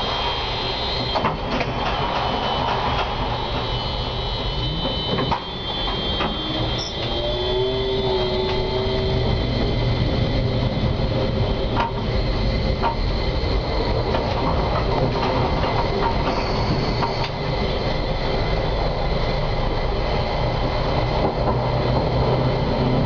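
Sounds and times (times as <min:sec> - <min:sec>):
high squealing tones: 0:00.0 - 0:13.8
short rising whine: 0:00.0 - 0:20.7
tram wheels and motors rumbling: 0:00.0 - 0:23.0
wheels clicking over rail joints: 0:13.8 - 0:17.4.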